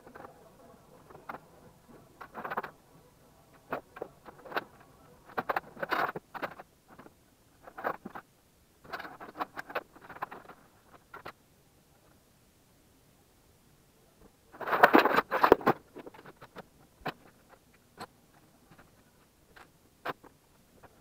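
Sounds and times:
cables and plugs rustling and clattering: 0.0s - 11.4s, 14.2s - 21.0s.

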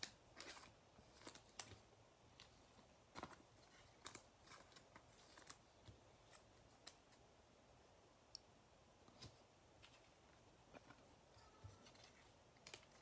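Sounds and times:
trading cards being handled: 9.1s - 13.0s.

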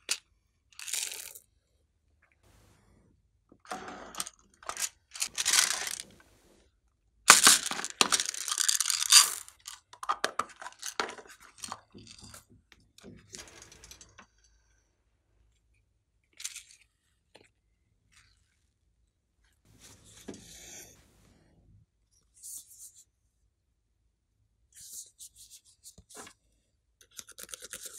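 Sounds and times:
plastic containers crinkling: 4.6s - 6.4s, 7.3s - 12.3s
short rattle: 4.6s - 6.5s.

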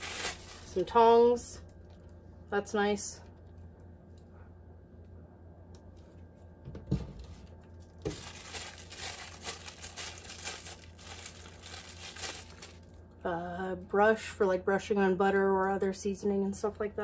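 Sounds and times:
plastic wrapping crinkling and tearing: 0.0s - 1.0s, 7.2s - 13.0s.

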